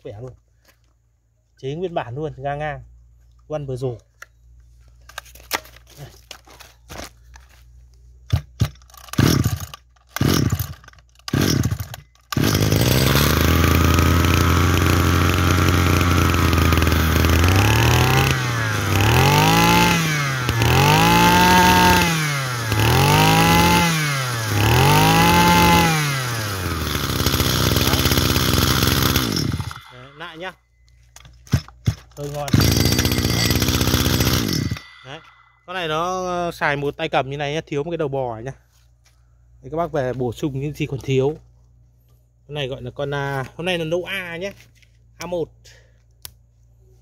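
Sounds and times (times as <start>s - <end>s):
starter cord pulls: 8.3s - 23.9s, 24.5s - 30.0s
brush cutter engine revving: 8.3s - 30.2s, 32.2s - 35.0s
brush cutter engine idling: 8.3s - 30.4s, 31.3s - 35.4s.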